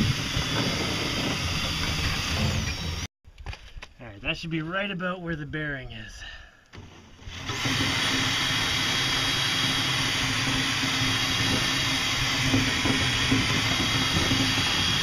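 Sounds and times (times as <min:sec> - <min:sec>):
cordless drill whining: 0:00.0 - 0:03.1, 0:06.7 - 0:15.0.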